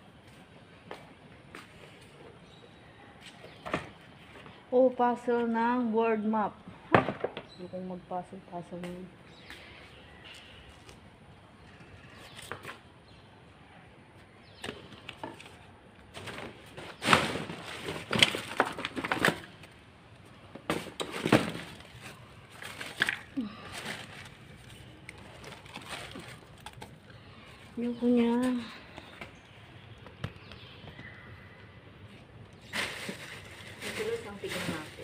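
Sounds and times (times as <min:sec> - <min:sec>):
objects clattering: 0:14.6 - 0:19.8, 0:20.5 - 0:27.0
plastic bags rustling: 0:14.9 - 0:28.7, 0:32.5 - 0:35.0.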